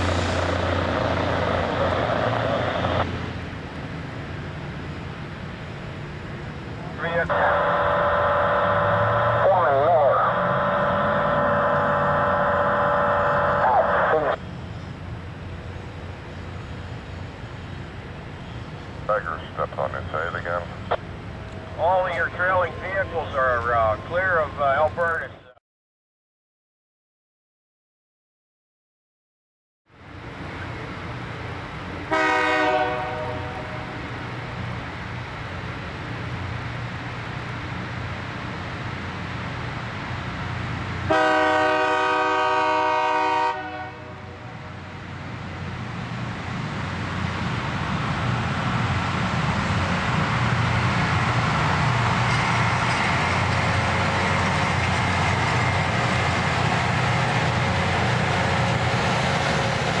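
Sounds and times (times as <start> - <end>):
rail grinder running: 0.0 - 3.1, 48.8 - 60.0
rail grinder horn blasts: 7.3 - 14.1, 32.1 - 34.0, 41.1 - 44.8.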